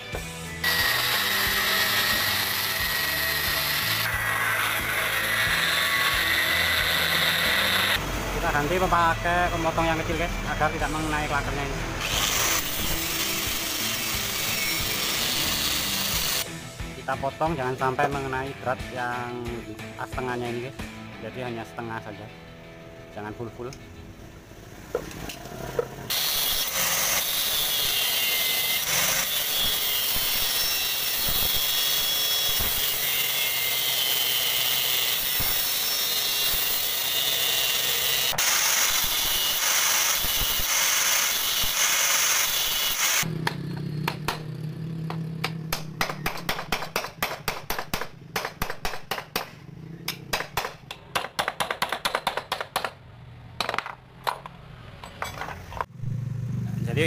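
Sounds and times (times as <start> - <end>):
angle grinder cutting steel: 0.0 - 16.6, 25.1 - 43.6
sharp metal taps and clicks: 43.4 - 53.0.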